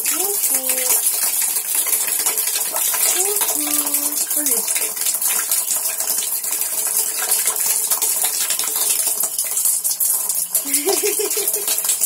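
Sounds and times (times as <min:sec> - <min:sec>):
running water: 0:00.0 - 0:12.0.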